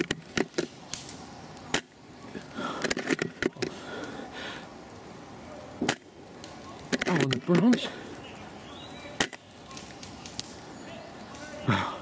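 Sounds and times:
sharp clicks and snaps: 0.0s - 4.2s, 9.2s - 10.6s.

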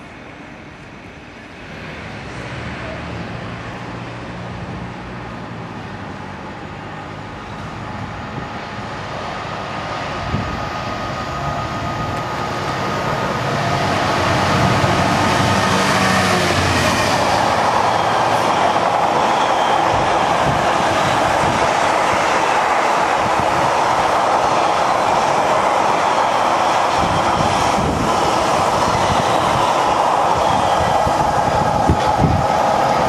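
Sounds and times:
passing train noise: 0.0s - 33.0s
diesel locomotive engine running: 6.6s - 33.0s.

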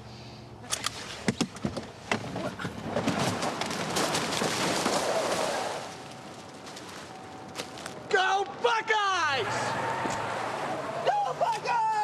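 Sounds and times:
dirt and leaves scraping: 2.8s - 8.1s.

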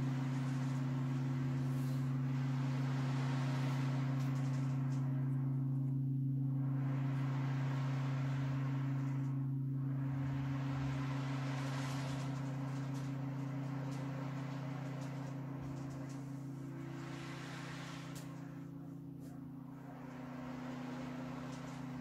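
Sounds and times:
singing bowls ringing: 0.0s - 22.0s
ocean drum beads rolling: 10.2s - 18.3s.

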